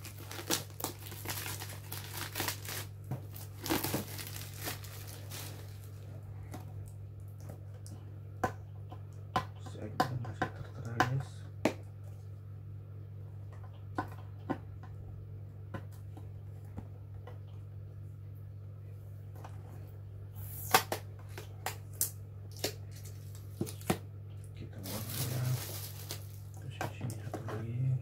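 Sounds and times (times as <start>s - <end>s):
plastic crinkling: 0.0s - 6.2s, 24.8s - 26.6s
steady low hum: 0.0s - 28.0s.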